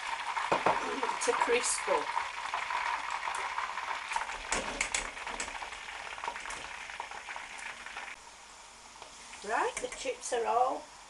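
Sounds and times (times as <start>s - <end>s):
chips sizzling in hot oil: 0.0s - 11.0s
metal clicking against pan: 4.5s - 5.6s.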